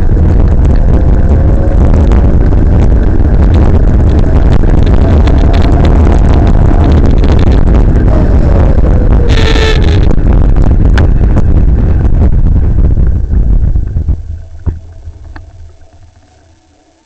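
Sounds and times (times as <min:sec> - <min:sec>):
wind buffeting microphone: 0:00.0 - 0:16.8
road rumble: 0:00.0 - 0:17.0
brief shrill tone: 0:09.2 - 0:10.1.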